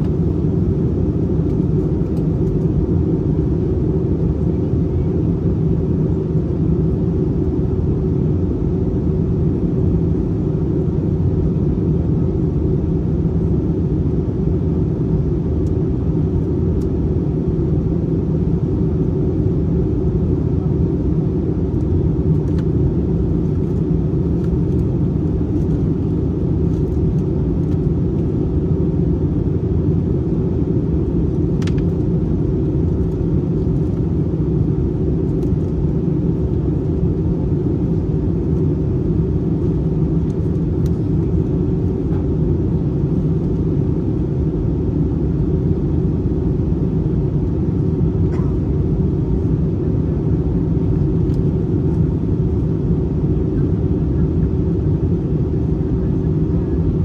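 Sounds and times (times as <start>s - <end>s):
airliner engine drone: 0.0s - 57.0s.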